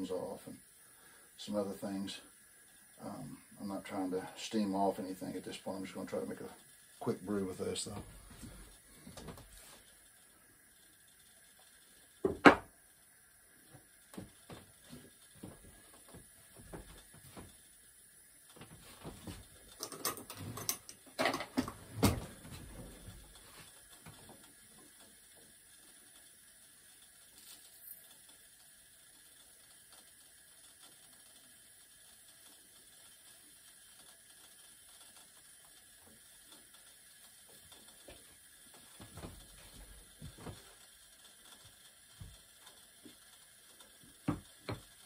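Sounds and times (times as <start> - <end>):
low steady background hiss: 0.0 - 45.0
small hard clicks and knocks: 41.4 - 45.0.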